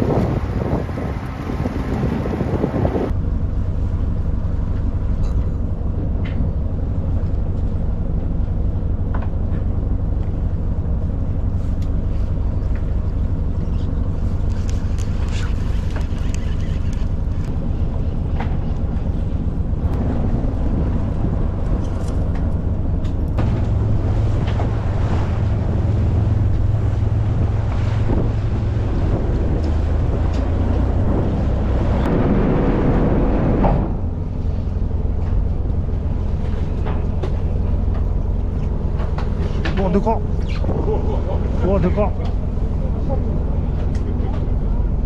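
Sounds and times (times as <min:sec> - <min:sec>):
wind on microphone: 0:00.0 - 0:03.2, 0:13.4 - 0:36.0
boat engine droning: 0:00.0 - 0:45.0.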